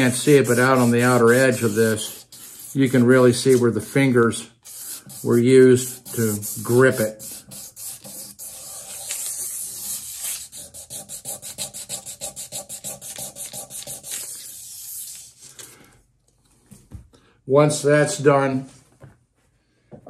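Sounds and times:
sandpaper rubbing on metal: 0.0 - 15.3.

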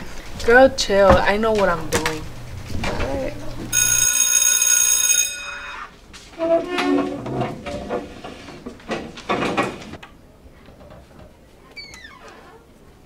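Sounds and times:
electric school bell ringing: 3.7 - 6.0
chair legs scraping: 6.2 - 10.0.

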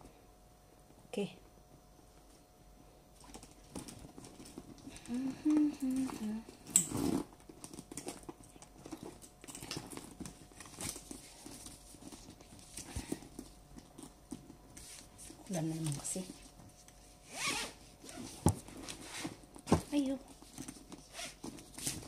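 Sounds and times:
woman humming: 5.0 - 6.6.

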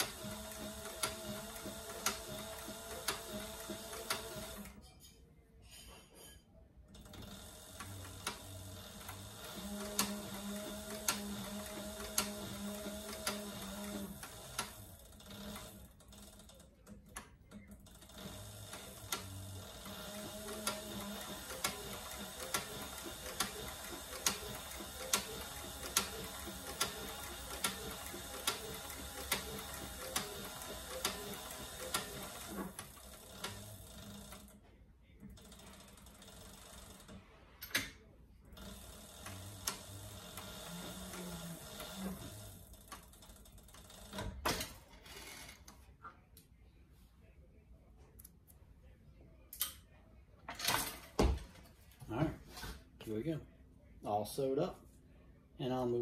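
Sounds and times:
sewing machine motor hum: 0.0 - 4.8, 6.9 - 34.6, 35.2 - 37.4, 38.5 - 45.6
sewing machine stitch clack: 0.0 - 4.8, 6.9 - 34.5, 38.6 - 44.7.

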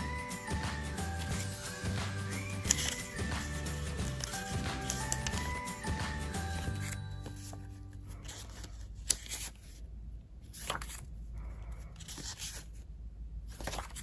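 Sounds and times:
soft background music: 0.0 - 8.8
paper rustling and snapping: 2.4 - 5.6, 6.4 - 9.8, 10.5 - 11.1, 12.0 - 12.8, 13.5 - 14.0.

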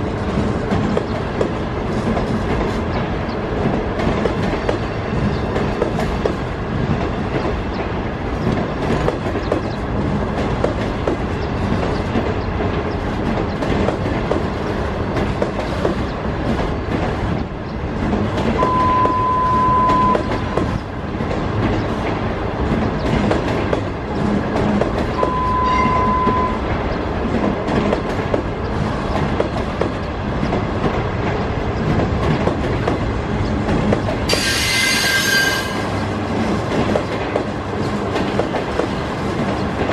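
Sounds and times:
train wheels clattering over rails: 0.0 - 39.9
steady high tone: 25.2 - 26.6.

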